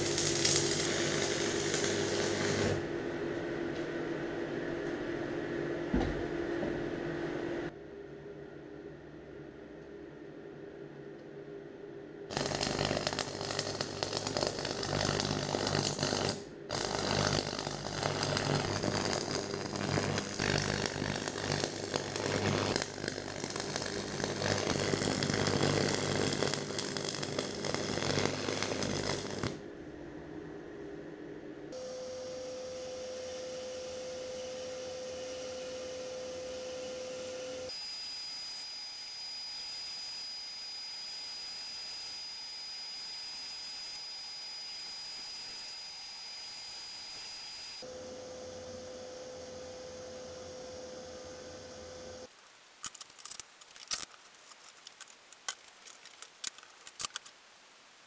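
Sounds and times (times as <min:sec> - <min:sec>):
welding arc crackling: 0:00.0 - 0:02.8, 0:12.3 - 0:29.6, 0:52.8 - 0:57.3.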